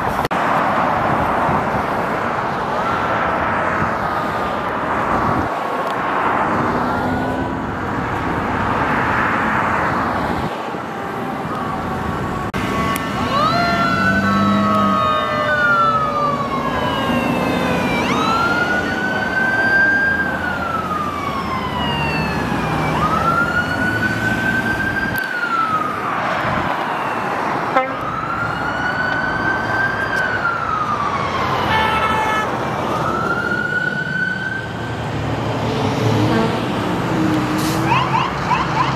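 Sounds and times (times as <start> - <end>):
freeway traffic noise: 0.0 - 38.9
wail siren sweeping: 2.5 - 4.0, 10.0 - 35.1, 37.8 - 38.9
faster higher siren sweeps: 10.9 - 34.8.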